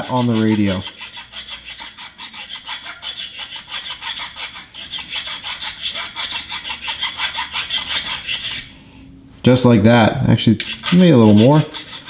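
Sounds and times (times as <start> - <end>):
hand file rasping on plastic: 0.0 - 8.7, 10.6 - 12.0.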